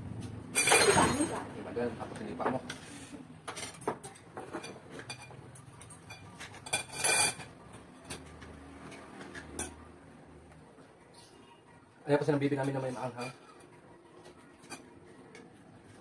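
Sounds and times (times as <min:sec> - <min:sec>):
tableware clinking on bowls: 0:00.5 - 0:01.4, 0:03.5 - 0:08.4, 0:12.6 - 0:13.7, 0:14.6 - 0:15.0
tableware clatter: 0:00.5 - 0:01.5, 0:03.4 - 0:09.9, 0:12.6 - 0:13.7, 0:14.6 - 0:15.0.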